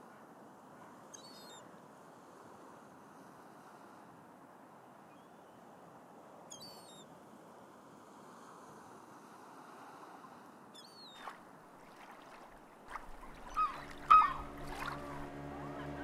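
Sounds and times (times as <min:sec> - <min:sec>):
water washing: 0:11.2 - 0:16.0
gulls calling: 0:12.0 - 0:16.0
low tone with overtones: 0:13.6 - 0:16.0.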